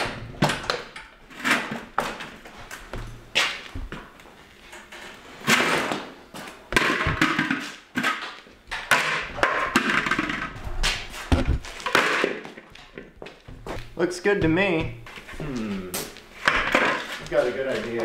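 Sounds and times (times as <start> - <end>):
plastic hard hat knocking and scraping: 6.7 - 8.1, 8.9 - 15.4.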